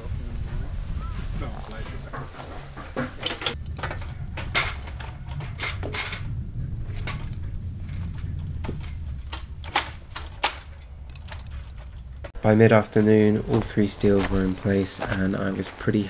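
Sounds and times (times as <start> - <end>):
low steady rumble: 3.5 - 12.7
sharp knocks and clicks of tools: 8.0 - 12.4.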